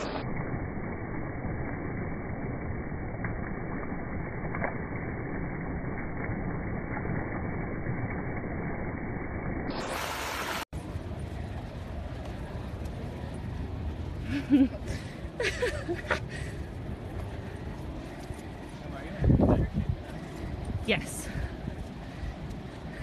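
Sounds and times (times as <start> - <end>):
water rushing over rocks: 0.0 - 0.3, 9.7 - 10.7
steady outdoor hiss: 9.7 - 23.0.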